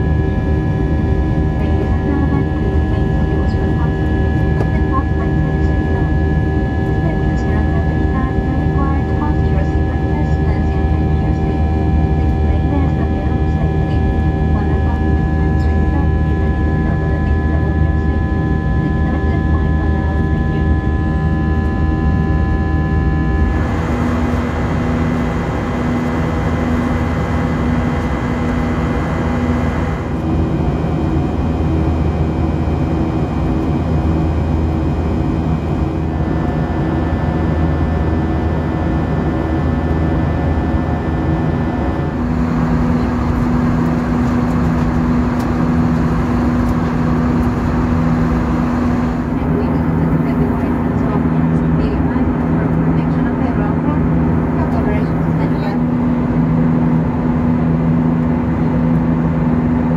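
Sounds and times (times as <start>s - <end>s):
jet engine and airflow roar: 0.0s - 59.9s
engine tones shifting pitch: 16.4s - 30.6s, 41.5s - 51.7s.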